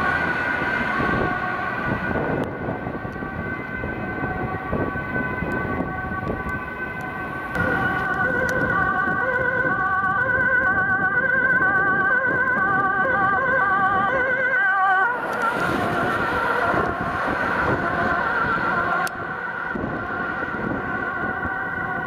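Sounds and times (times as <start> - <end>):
warbling emergency siren: 0.0 - 22.0.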